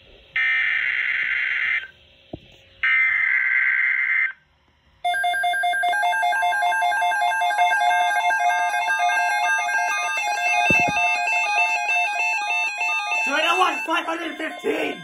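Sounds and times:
electronic alarm beeping: 5.1 - 15.0
raspy data tone bursts: 5.1 - 15.0.

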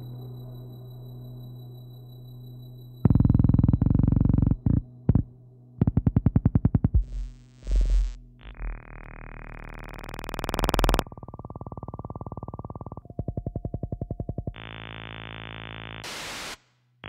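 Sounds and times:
buzzing tone: 3.0 - 16.6
fast clicking pulses: 3.1 - 16.5
short electronic blips: 6.0 - 11.0.

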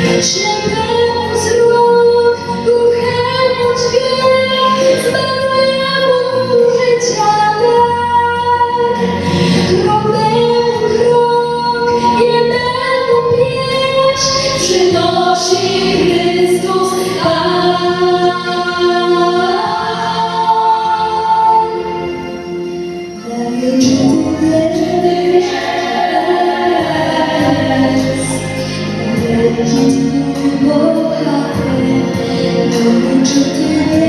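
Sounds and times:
girls choir singing: 14.5 - 21.8, 23.4 - 31.4.

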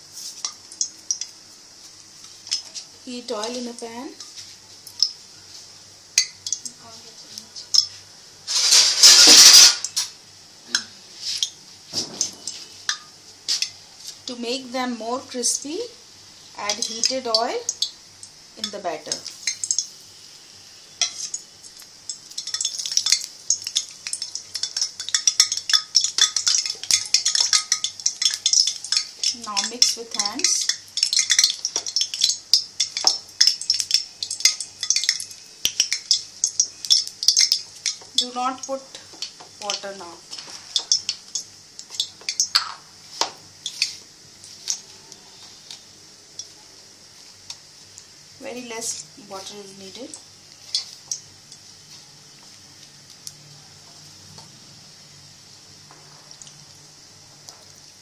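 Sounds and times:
hot oil crackling and popping: 0.0 - 58.0
onion and flour clinking in bowl: 22.1 - 38.4.

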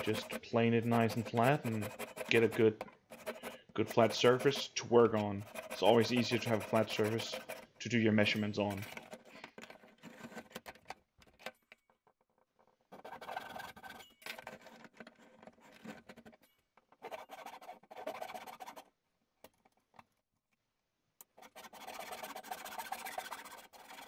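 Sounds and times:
rough scraping of wood: 0.0 - 10.8.

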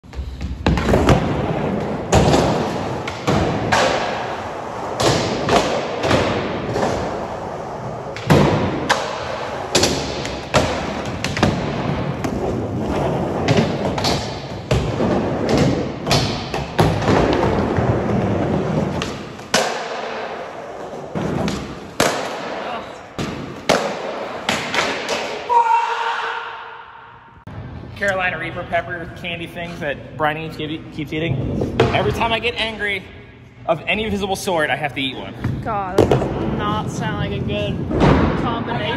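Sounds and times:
skateboard wheels rumbling: 0.2 - 19.6.

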